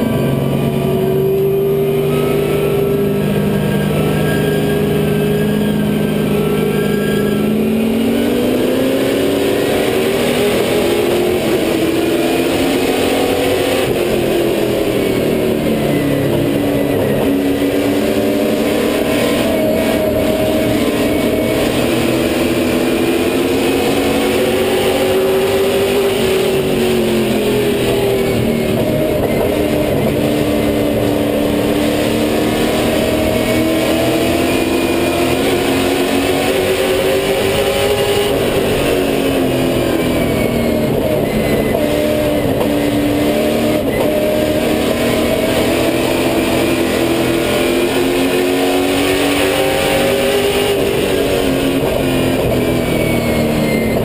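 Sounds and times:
racing car engine: 0:00.0 - 0:54.0.

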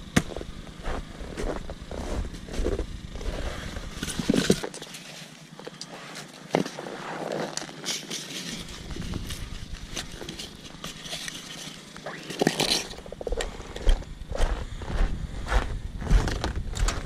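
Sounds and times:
hatchet splitting wood: 0:00.0 - 0:00.6
footsteps crunching through snow: 0:00.0 - 0:17.0
wood pieces being handled: 0:03.9 - 0:06.8, 0:07.6 - 0:13.9.

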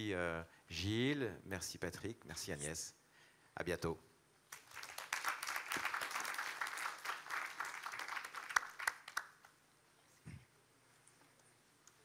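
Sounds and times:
audience applauding: 0:04.5 - 0:09.5.

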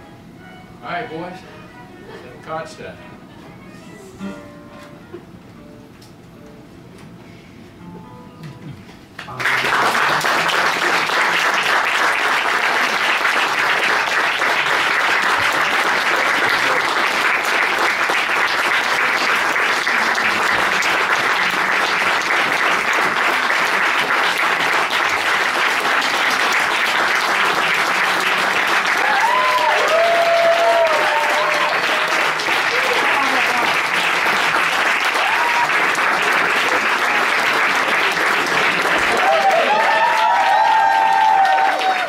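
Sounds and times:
audience applauding: 0:09.2 - 0:42.0
crowd calling out: 0:28.9 - 0:33.0, 0:39.1 - 0:42.0.

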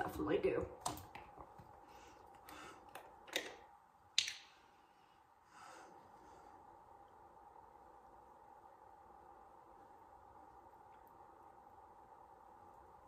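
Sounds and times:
soft breath-like rush: 0:04.5 - 0:07.0.

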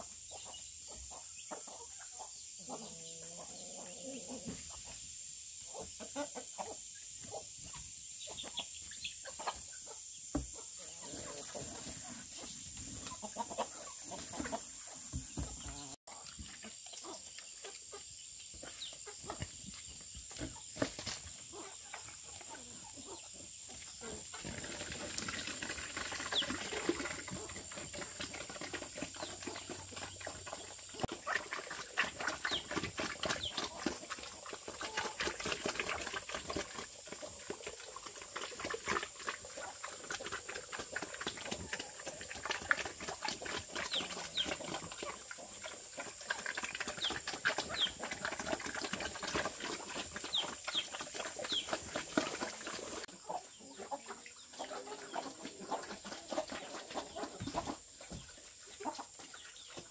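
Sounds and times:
steady high-pitched hiss: 0:00.0 - 0:25.1
chickens clucking and chirping: 0:00.0 - 0:59.9.

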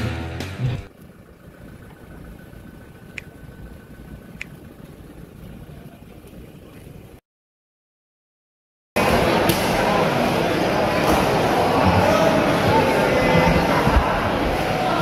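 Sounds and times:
background music: 0:00.0 - 0:00.9
vehicle engine idling: 0:00.0 - 0:07.2.

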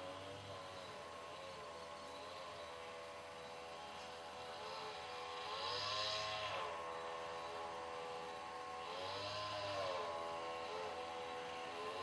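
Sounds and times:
engine revving: 0:04.5 - 0:06.9, 0:08.7 - 0:12.0.

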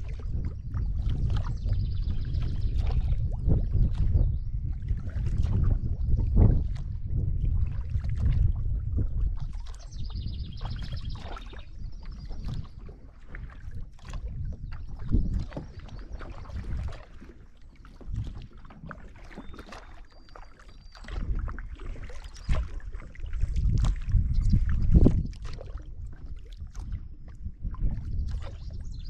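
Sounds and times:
paddle splashing water: 0:00.0 - 0:29.0.

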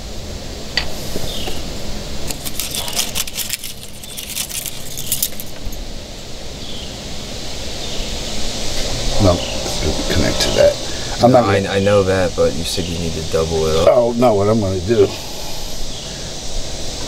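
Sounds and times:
low background noise: 0:00.0 - 0:17.0
wire and terminals rattling: 0:02.3 - 0:05.8.

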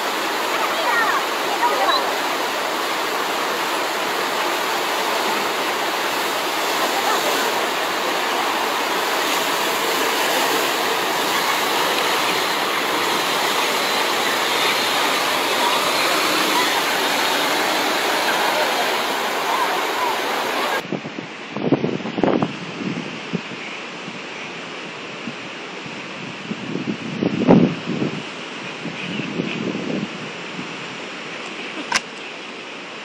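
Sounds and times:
loud rushing noise: 0:00.0 - 0:21.8.

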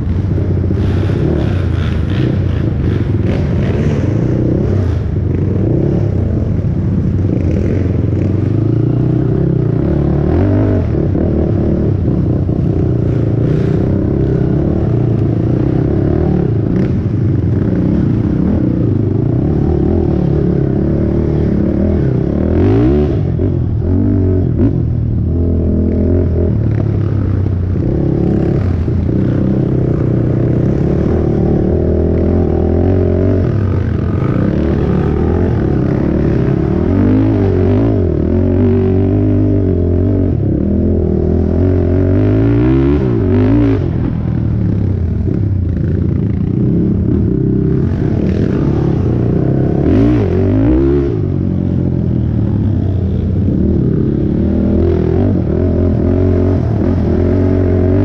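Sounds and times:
quad engine revving: 0:25.4 - 0:44.3, 0:46.5 - 0:52.7.

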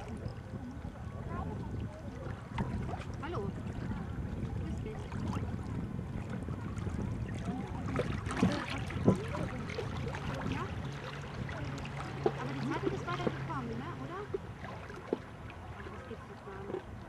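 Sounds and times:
small waves lapping and splashing: 0:00.0 - 0:17.0
steady low rumble: 0:00.0 - 0:17.0.

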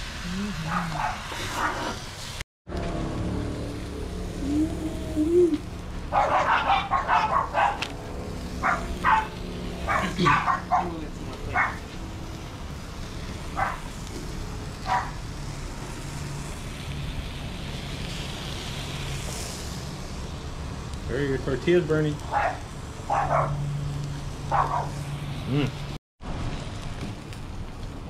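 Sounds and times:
dog barking: 0:00.7 - 0:02.0, 0:06.1 - 0:07.8, 0:08.6 - 0:11.8, 0:13.6 - 0:13.9, 0:14.8 - 0:15.2, 0:22.3 - 0:23.6, 0:24.5 - 0:25.0.

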